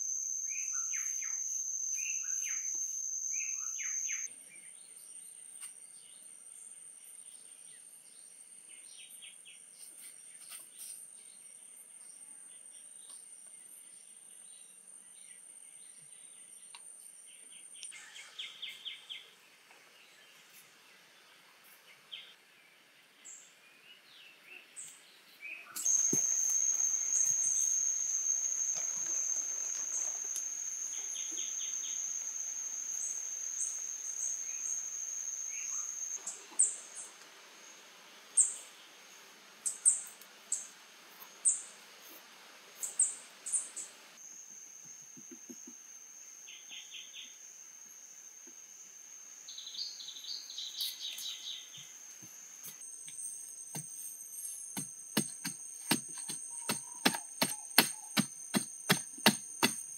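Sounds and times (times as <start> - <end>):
high-pitched insect drone: 0.0 - 4.3, 25.8 - 36.2.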